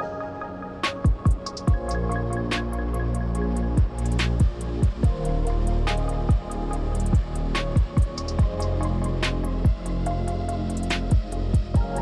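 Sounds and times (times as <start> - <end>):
deep drum beat: 1.1 - 2.0, 3.8 - 5.3, 6.3 - 8.7, 9.7 - 10.0, 11.0 - 12.0.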